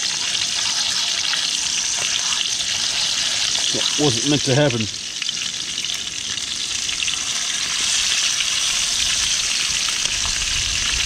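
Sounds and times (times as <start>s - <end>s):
fish sizzling in frying pan: 0.0s - 11.0s.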